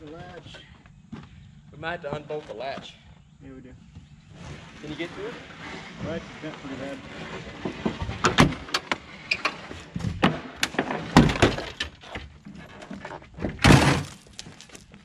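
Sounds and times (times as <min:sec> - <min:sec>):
car hood crashing onto gravel: 0:13.5 - 0:14.4.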